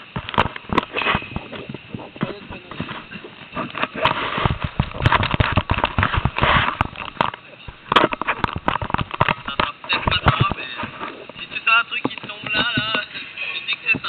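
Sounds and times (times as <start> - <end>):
camera handling noise: 3.6 - 11.4.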